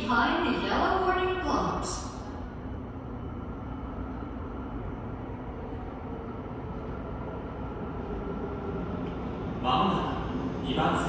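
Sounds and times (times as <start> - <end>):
subway train rumble: 0.0 - 11.0.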